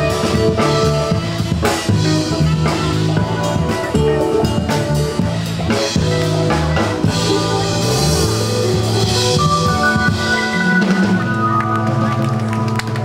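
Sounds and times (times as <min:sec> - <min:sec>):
bass line: 0:00.0 - 0:13.0
drum kit beat: 0:00.0 - 0:13.0
live band playing: 0:00.0 - 0:13.0.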